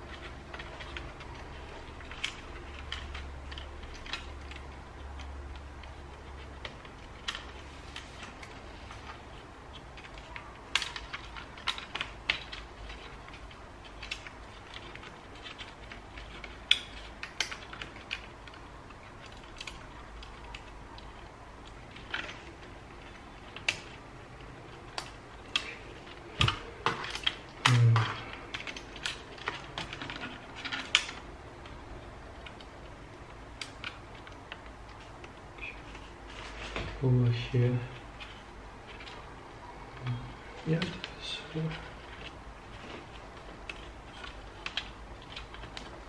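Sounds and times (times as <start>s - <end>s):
plastic and cable clicks: 0.1s - 36.9s.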